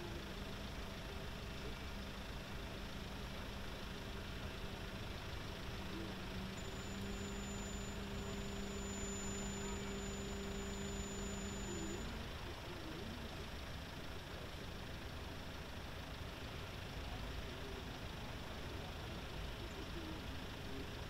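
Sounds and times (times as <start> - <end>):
car engines idling: 0.0 - 21.0
thin high whine: 6.6 - 12.1.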